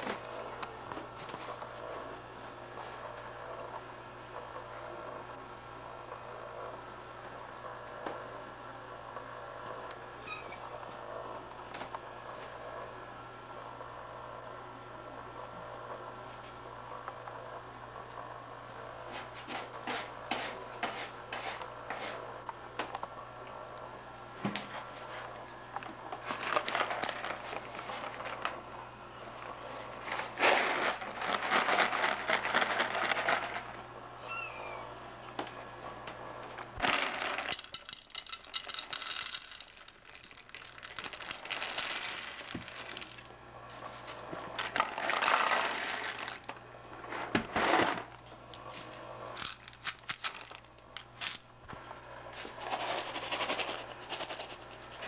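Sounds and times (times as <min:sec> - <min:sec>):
kitten crunching dry kibble: 0:25.8 - 0:28.7, 0:29.4 - 0:33.8, 0:36.8 - 0:46.6, 0:47.6 - 0:51.5, 0:52.4 - 0:55.0.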